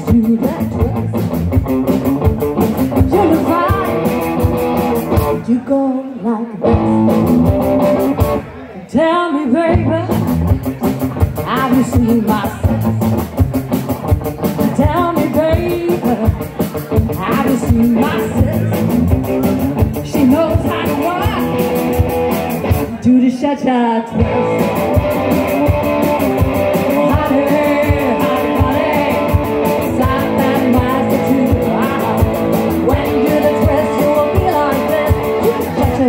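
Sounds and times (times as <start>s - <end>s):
woman singing: 0.0s - 1.0s, 3.0s - 4.2s, 5.4s - 7.0s, 8.9s - 10.3s, 11.4s - 12.8s, 14.6s - 16.4s, 17.2s - 18.4s, 20.0s - 21.4s, 23.0s - 24.4s, 26.9s - 36.0s
drum kit: 0.0s - 5.4s, 6.7s - 8.5s, 9.8s - 23.0s, 24.2s - 36.0s
electric guitar: 0.0s - 36.0s.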